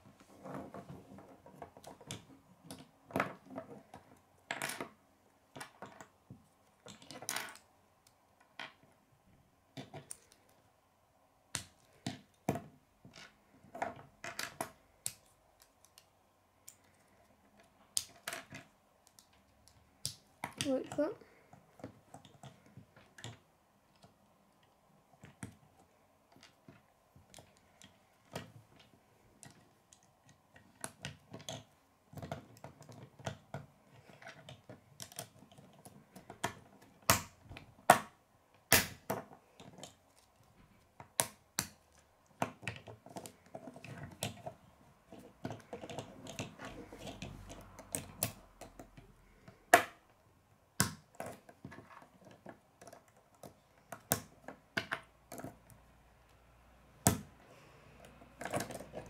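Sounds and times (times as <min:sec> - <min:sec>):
plastic pieces snapping together: 0:13.9 - 0:17.0, 0:17.6 - 0:20.7, 0:29.4 - 0:40.0.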